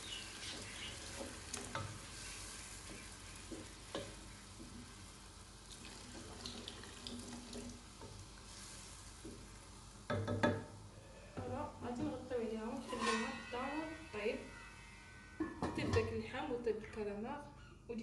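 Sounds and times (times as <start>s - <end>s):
wooden spoon stirring soup: 0.0s - 10.5s
water pouring into pot: 5.6s - 9.0s
spoon knocking against pot: 10.1s - 10.7s.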